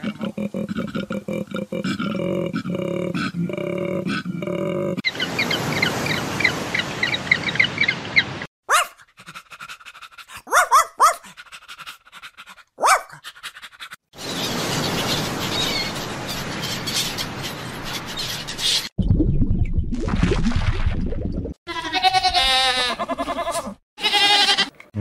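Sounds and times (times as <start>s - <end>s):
puppy yapping: 8.7s - 9.0s, 10.4s - 11.3s, 12.8s - 13.2s.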